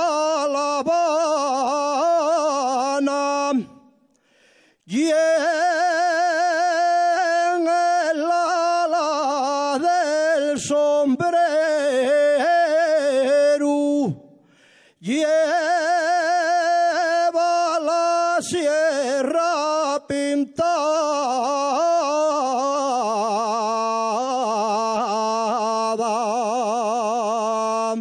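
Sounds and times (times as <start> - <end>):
man singing unaccompanied: 0.0 - 4.0, 4.9 - 14.4, 15.0 - 28.0
breath: 4.0 - 4.9, 14.3 - 15.0.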